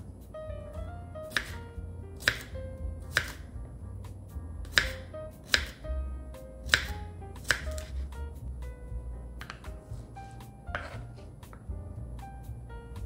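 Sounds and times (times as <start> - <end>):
soft background music: 0.0 - 13.0
knife chopping on wooden board: 1.3 - 1.6, 2.2 - 3.4, 4.6 - 5.8, 6.6 - 8.2, 9.4 - 11.7.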